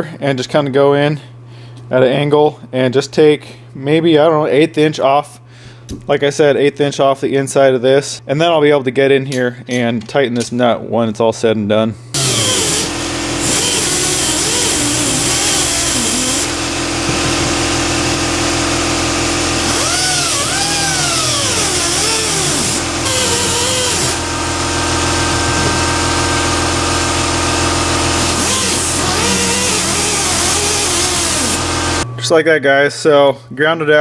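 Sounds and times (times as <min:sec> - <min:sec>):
die grinder cutting plastic: 0:12.2 - 0:32.0.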